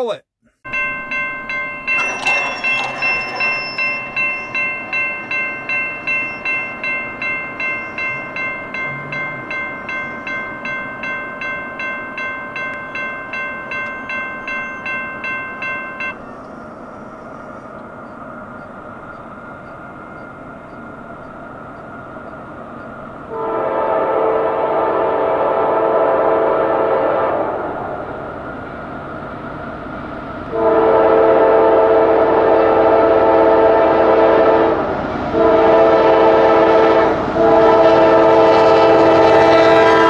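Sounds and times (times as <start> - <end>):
railroad crossing bell ringing: 0.7 - 24.2, 37.6 - 40.0
freight train rumble: 0.7 - 40.0
locomotive horn: 23.2 - 27.8, 30.5 - 40.0.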